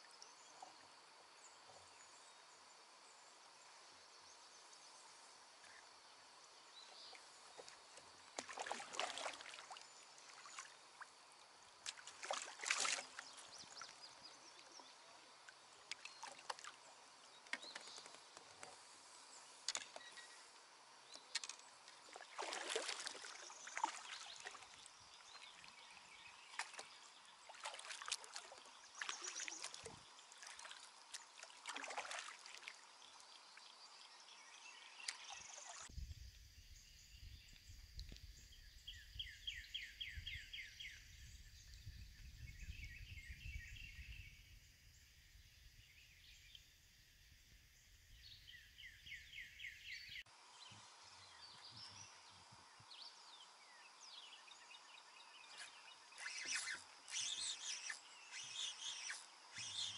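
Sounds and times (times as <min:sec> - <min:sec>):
birds chirping and trilling: 0:48.3 - 0:59.9.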